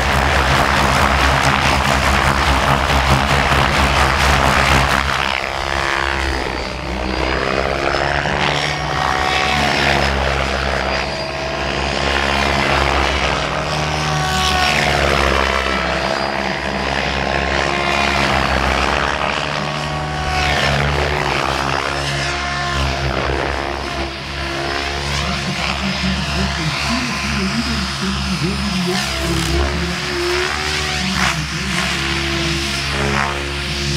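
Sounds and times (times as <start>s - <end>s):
rc helicopter rotor whir: 0.0s - 33.9s.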